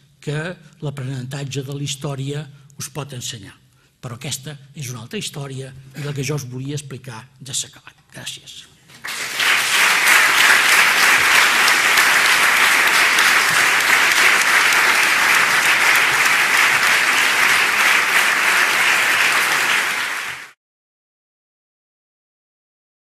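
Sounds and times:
audience applauding: 9.0 - 20.6.

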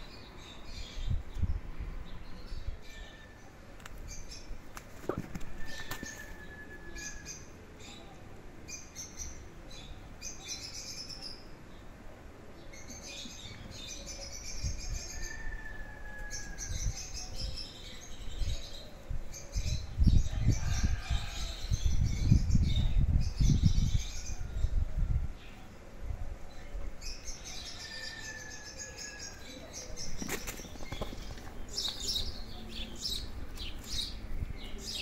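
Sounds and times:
cats scuffling and rustling: 30.0 - 32.8.

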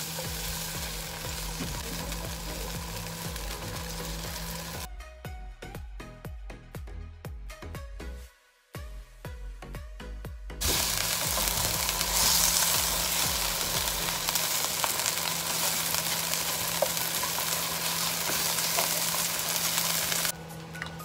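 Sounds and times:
chicken sizzling in oil: 0.0 - 4.9, 10.6 - 20.3.

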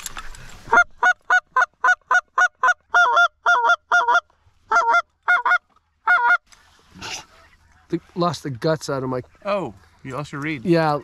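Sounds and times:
goose call cackling notes: 0.7 - 6.4.

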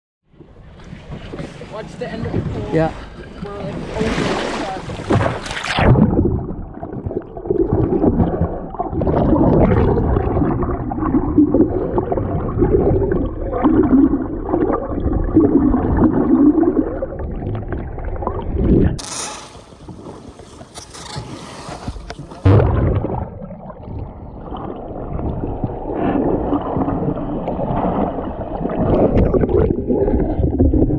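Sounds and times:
water lapping at boat side: 0.3 - 5.9
muffled underwater sloshing: 0.3 - 30.9.

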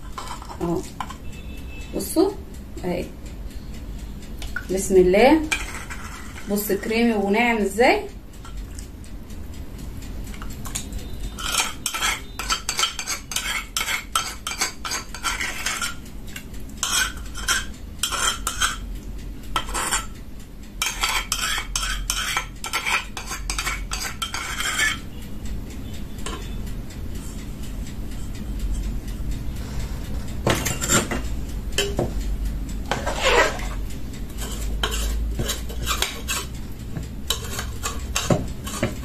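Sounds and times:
metal spoon stirring in metal pot: 0.0 - 1.3, 4.5 - 7.8, 10.3 - 18.8, 19.5 - 20.2, 20.8 - 25.1, 26.2 - 26.6, 30.4 - 32.1, 32.8 - 36.6, 37.2 - 39.0.

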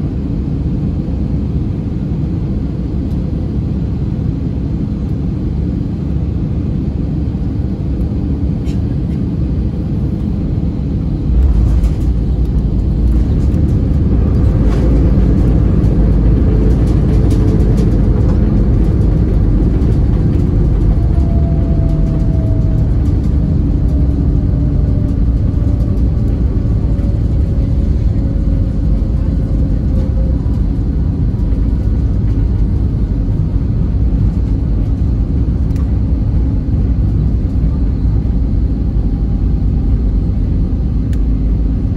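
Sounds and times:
aircraft landing rumble: 0.0 - 41.9
engine tone falling in pitch: 19.3 - 32.5.

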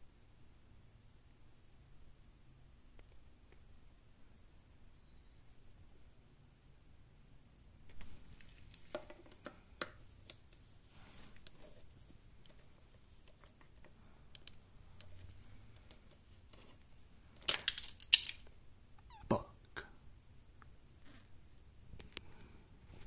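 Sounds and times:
hands rustling among cables: 7.8 - 18.6
small handling clicks: 12.4 - 16.1.

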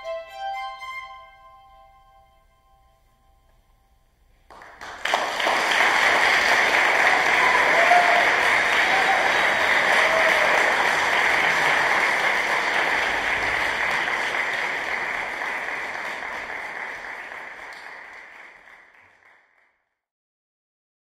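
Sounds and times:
audience applauding: 4.4 - 19.8.

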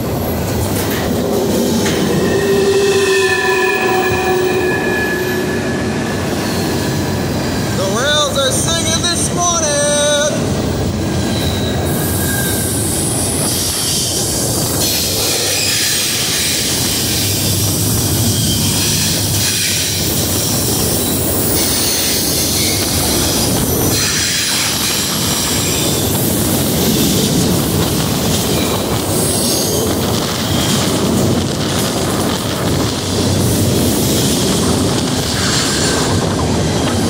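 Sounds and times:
train wheels rumbling and rattling: 0.0 - 37.0
high-pitched wheel squeal: 1.5 - 7.6, 11.1 - 14.1.

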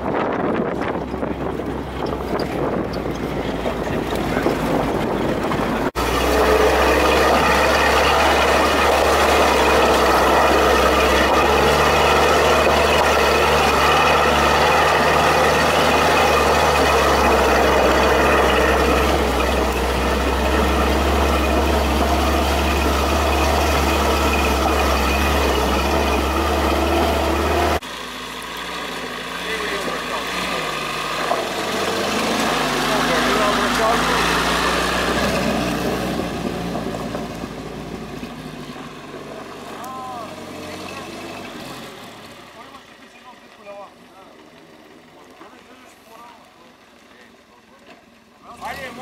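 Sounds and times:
rushing wind and road noise: 0.0 - 27.8
jeep engine droning: 0.0 - 49.0.

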